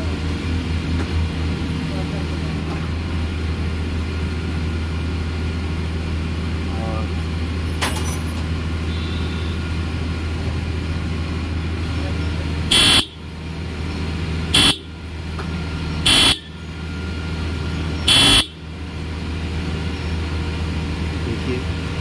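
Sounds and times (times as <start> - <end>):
motorcycle horn honks: 8.8 - 9.6, 12.7 - 13.2, 14.5 - 14.9, 16.0 - 16.6, 18.1 - 18.6.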